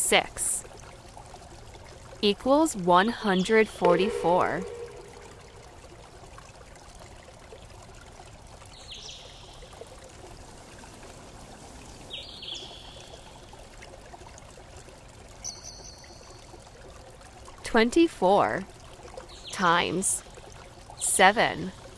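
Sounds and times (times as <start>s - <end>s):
short high double tone: 3.7s - 5.8s.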